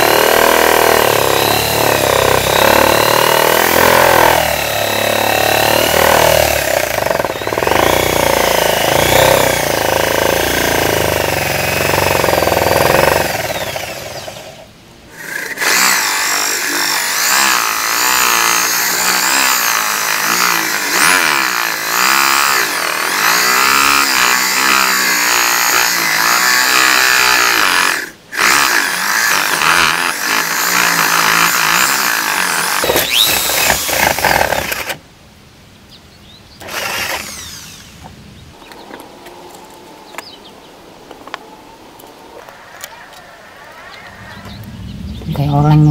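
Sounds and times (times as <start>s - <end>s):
electric drill boring through wood: 0.0s - 35.0s, 36.6s - 38.1s.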